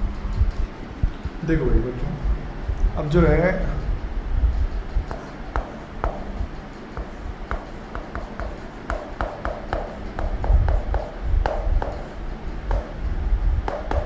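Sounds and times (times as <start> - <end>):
chalk tapping on blackboard: 4.6 - 14.0.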